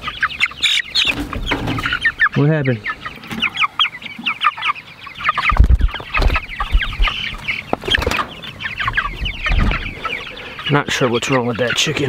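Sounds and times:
chickens peeping and clucking: 0.0s - 12.0s
dull low thumps: 5.5s - 7.2s, 8.8s - 10.0s.

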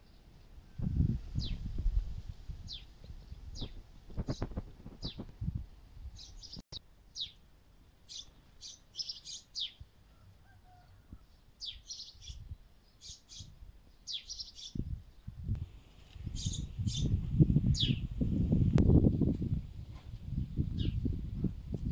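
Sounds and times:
small songbirds chirping: 2.6s - 5.3s, 6.1s - 7.4s, 8.0s - 9.9s, 10.7s - 15.5s, 16.2s - 18.3s, 20.4s - 21.2s.

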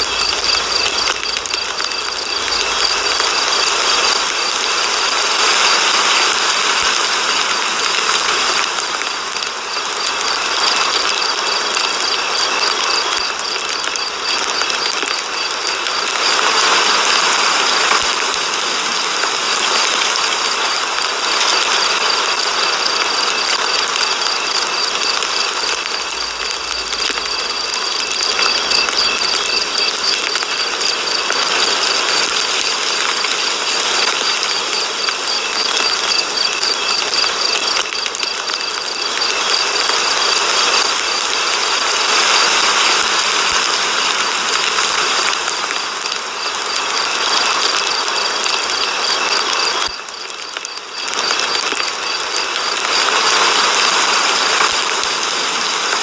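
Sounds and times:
fast mechanical ticking: 8.2s - 41.9s.

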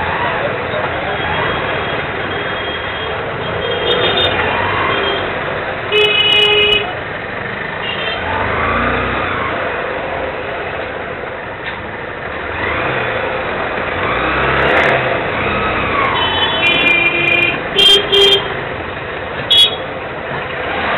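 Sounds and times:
vehicle horn honking: 5.9s - 7.0s, 16.2s - 18.6s, 19.5s - 19.8s
scooters passing by: 6.9s - 16.8s.

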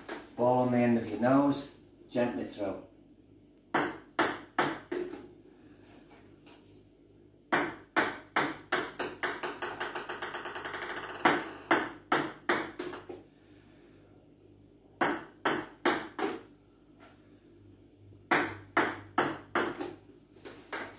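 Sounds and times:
ping pong balls bouncing: 3.7s - 5.3s, 7.5s - 13.2s, 15.0s - 16.5s, 18.3s - 20.0s.

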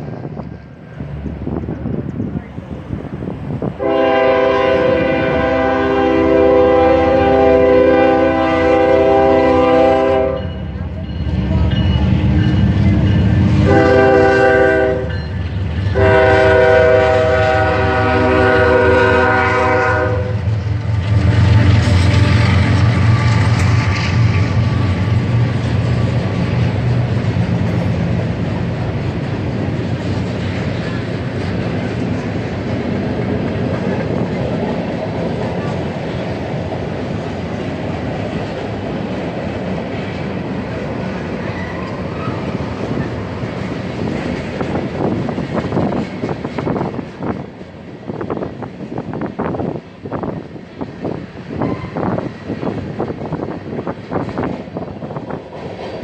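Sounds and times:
locomotive engines rumbling: 0.0s - 56.0s
train air horn: 3.8s - 10.5s, 13.4s - 15.2s, 15.9s - 20.5s, 51.6s - 52.2s
freight cars clattering on rails: 10.5s - 16.0s, 20.4s - 56.0s.

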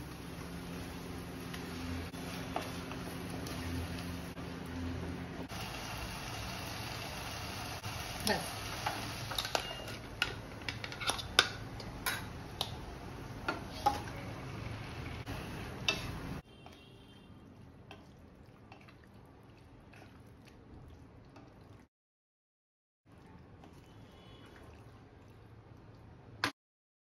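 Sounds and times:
food being stirred: 1.3s - 4.3s, 8.8s - 12.8s, 15.7s - 21.8s, 23.1s - 26.0s.

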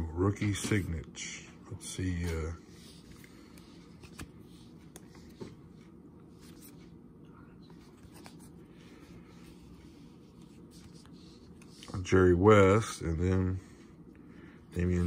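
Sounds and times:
cards sliding against each other: 2.7s - 7.0s, 7.7s - 12.0s.

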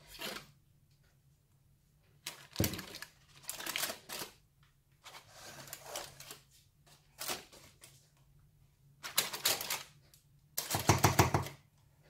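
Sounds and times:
baking paper rustling: 0.0s - 0.6s, 2.2s - 8.4s, 9.0s - 11.4s
plastic jug knocking on counter: 10.8s - 11.6s.

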